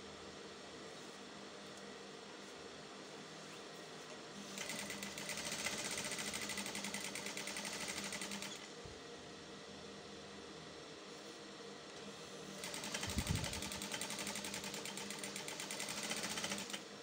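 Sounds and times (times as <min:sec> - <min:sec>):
sewing machine stitching: 0:04.5 - 0:08.6, 0:12.6 - 0:16.8.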